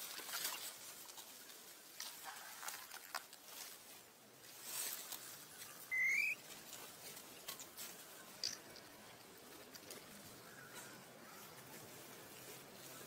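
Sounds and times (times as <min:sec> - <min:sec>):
dry leaves rustling and crackling: 0:00.0 - 0:13.0
monkey high call: 0:05.8 - 0:06.4.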